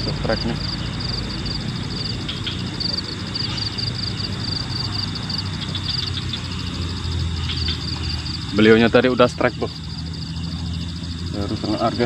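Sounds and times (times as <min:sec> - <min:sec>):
low rumble: 0:00.0 - 0:08.6
insects trilling: 0:00.0 - 0:12.0.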